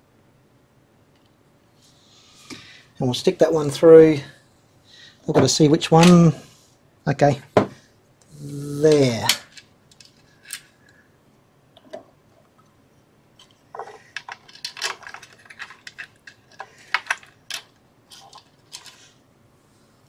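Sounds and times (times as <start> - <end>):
small screws clicking and clinking: 8.9 - 11.0, 13.4 - 19.1.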